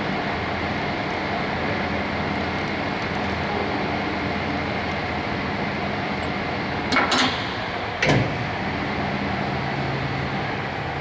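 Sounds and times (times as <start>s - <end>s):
machine clunk: 6.2s - 8.5s.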